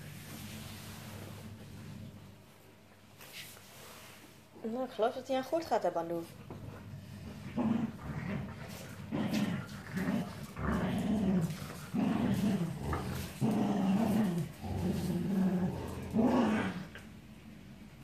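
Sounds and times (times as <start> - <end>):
dogs growling at play: 0.0 - 2.6, 6.2 - 17.5.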